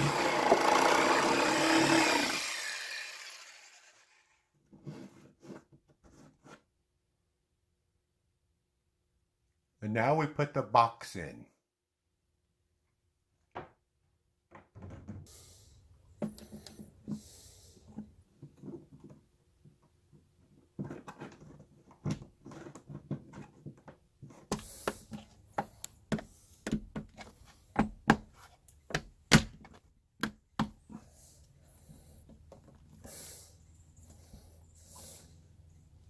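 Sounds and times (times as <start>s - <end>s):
rustling and scraping: 4.7s - 6.7s, 20.4s - 28.9s.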